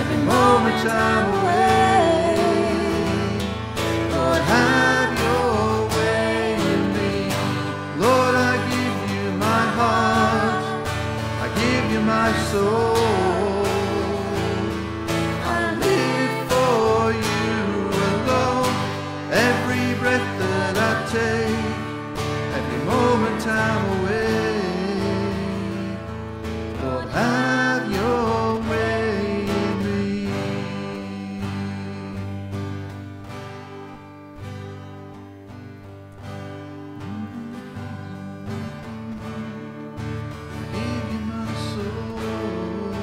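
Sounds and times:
woman singing: 0.0 - 18.7
strummed acoustic guitar: 0.0 - 43.0.

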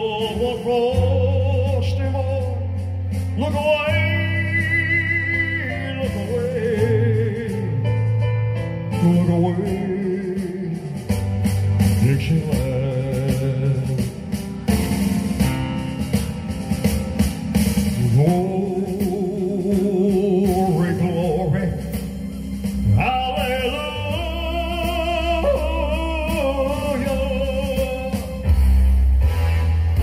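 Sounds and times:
person singing with vibrato: 0.0 - 8.1, 18.0 - 22.2, 22.8 - 28.5
backing track music: 0.0 - 30.0
deep bass: 0.0 - 30.0.

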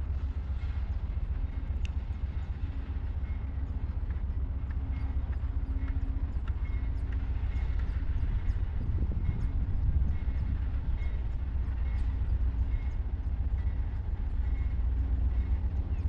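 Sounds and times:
low outdoor rumble: 0.0 - 16.0
faint clicks: 1.8 - 2.6.

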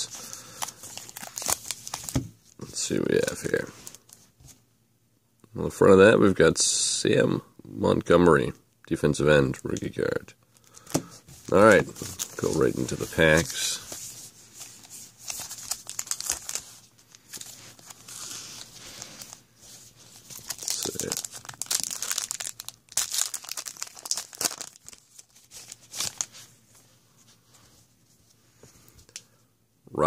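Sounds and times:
card pack wrappers crinkling: 0.0 - 4.2, 10.6 - 26.5.

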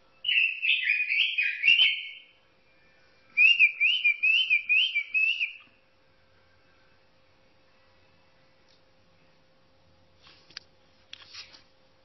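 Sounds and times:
robin singing: 0.0 - 6.9.

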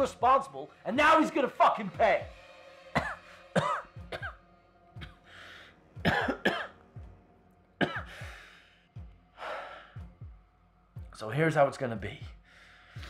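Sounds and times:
man coughing: 2.9 - 4.4, 6.0 - 6.8, 7.8 - 8.1
rasping breaths: 7.9 - 10.4.

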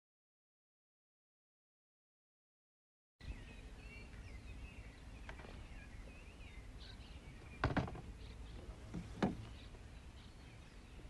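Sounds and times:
birds chirping and warbling: 3.2 - 11.0
low rumble of wind: 3.2 - 11.0
open water: 3.6 - 11.0
sharp knocks: 7.6 - 8.1, 9.0 - 9.4.

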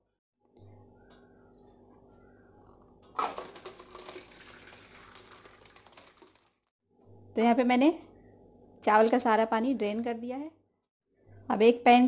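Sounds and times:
water pouring into a metal colander: 3.2 - 6.7
water splashing and draining: 3.2 - 6.7.

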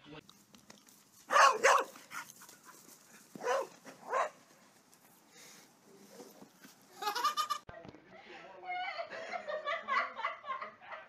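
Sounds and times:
dog barking excitedly: 1.3 - 2.8, 3.4 - 4.4.

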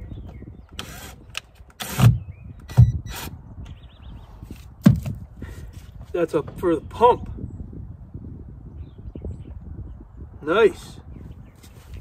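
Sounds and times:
cordless drill whirring: 0.8 - 2.2.

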